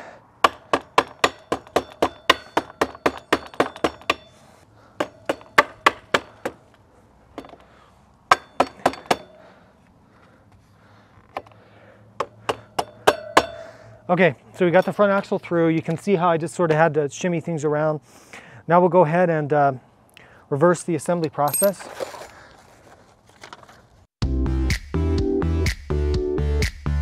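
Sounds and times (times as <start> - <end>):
rubber mallet striking metal axle: 0.4 - 4.4, 5.0 - 6.6, 8.3 - 9.4, 12.2 - 13.7.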